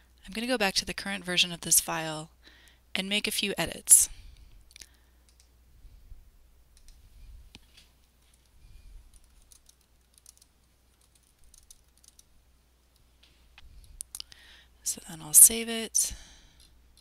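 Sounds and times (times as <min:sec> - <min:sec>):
keyboard keystrokes: 0:09.1 - 0:12.3.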